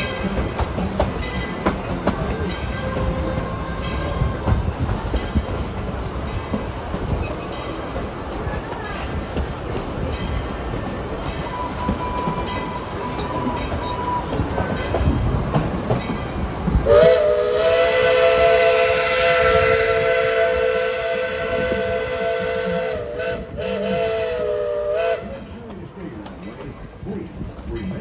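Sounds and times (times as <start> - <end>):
train cars clattering over rail joints: 0.0 - 17.2
steam locomotive chime whistle: 11.4 - 14.6, 16.8 - 25.4.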